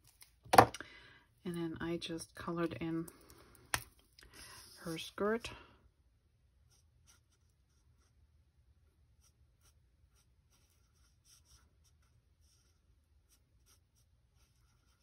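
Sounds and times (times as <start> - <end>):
marker scratching on card: 9.2 - 15.0.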